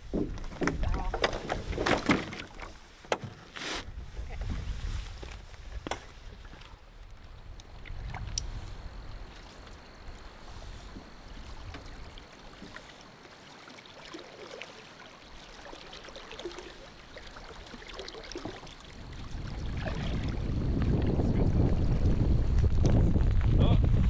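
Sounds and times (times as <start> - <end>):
wind on microphone: 3.8 - 6.4, 7.3 - 9.4, 18.9 - 24.0
water lapping on rocky shore: 10.6 - 21.9.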